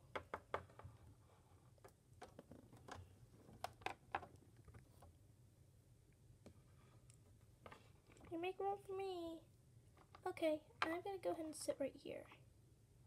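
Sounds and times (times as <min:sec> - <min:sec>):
faint room hum: 0:00.0 - 0:13.0
plastic figurines tapping on table: 0:00.1 - 0:00.9.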